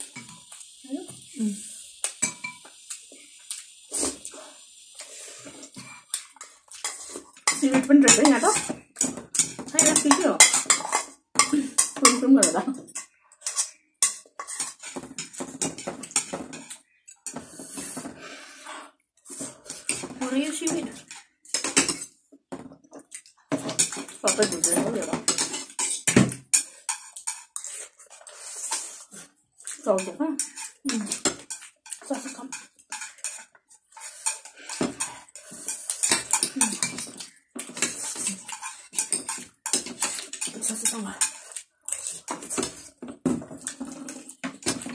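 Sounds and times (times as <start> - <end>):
cutlery clicking on ceramic plates: 6.1 - 17.4, 20.7 - 22.1, 23.5 - 27.6, 29.7 - 33.6, 34.3 - 42.8
eating noodles: 30.4 - 43.0
wet chewing: 41.2 - 43.0.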